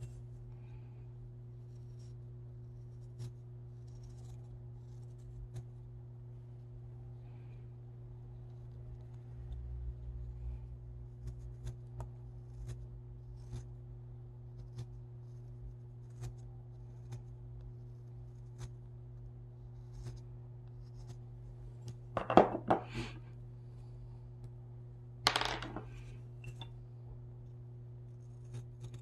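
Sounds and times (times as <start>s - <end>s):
low hum: 0.0s - 29.0s
knife carving wood: 1.6s - 5.9s, 11.0s - 13.8s, 14.4s - 21.3s, 28.0s - 29.0s
knife clattering on wooden bench: 22.2s - 22.8s, 25.3s - 25.8s.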